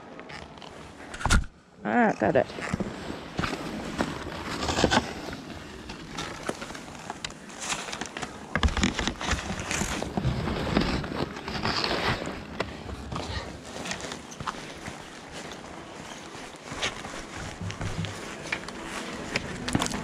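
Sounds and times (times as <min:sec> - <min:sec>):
skis and poles clicking: 0:02.1 - 0:20.0
boots crunching on snow: 0:09.2 - 0:20.0.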